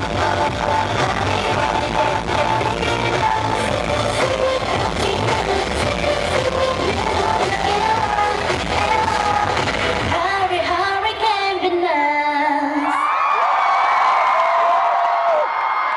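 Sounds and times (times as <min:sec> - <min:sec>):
electro-pop dance music: 0:00.0 - 0:12.2
woman singing: 0:00.0 - 0:12.9.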